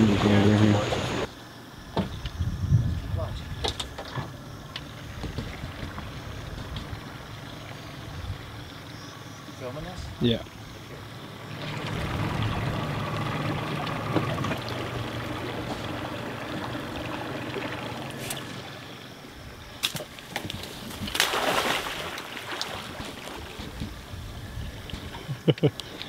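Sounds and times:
steady low hum: 0.0s - 21.1s
fish splashing into water: 19.8s - 23.7s.

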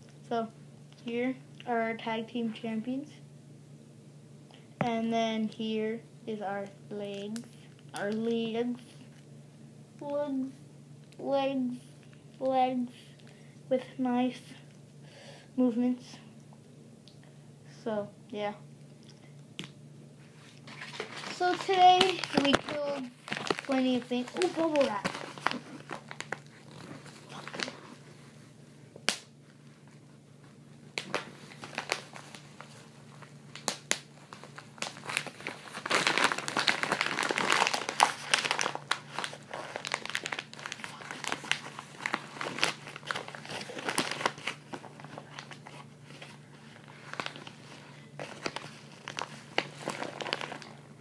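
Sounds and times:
bubble wrap crinkling and crackling: 20.3s - 51.0s.

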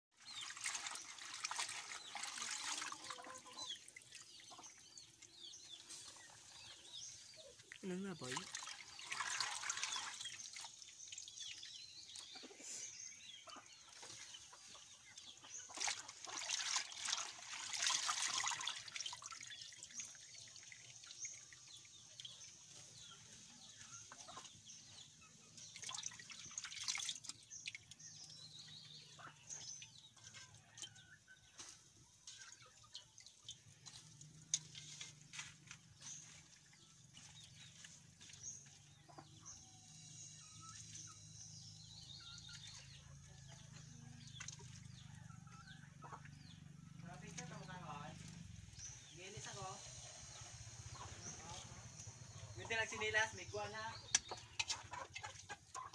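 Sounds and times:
broth simmering and bubbling: 0.1s - 12.5s, 13.4s - 55.9s
leafy greens rustling: 33.8s - 38.7s.

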